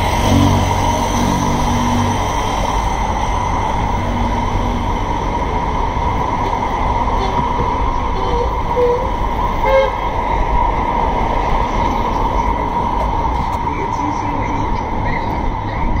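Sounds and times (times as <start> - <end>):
traffic rumble: 0.0 - 16.0
short horn toot: 8.2 - 10.0.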